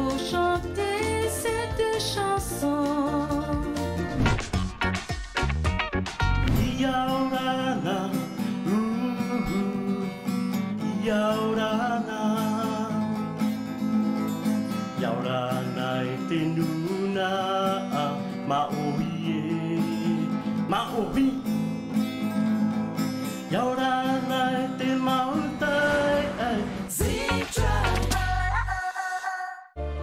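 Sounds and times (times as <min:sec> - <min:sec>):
other music: 0:00.0 - 0:09.8, 0:23.8 - 0:28.8
acoustic guitar strummed: 0:00.0 - 0:28.5
man singing: 0:06.4 - 0:13.1, 0:14.9 - 0:21.5, 0:23.5 - 0:29.7.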